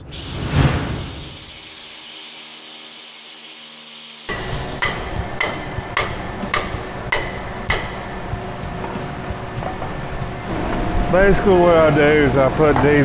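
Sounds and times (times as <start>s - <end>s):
metal tool tapping on metal: 4.3s - 8.1s
faint music: 5.2s - 13.0s.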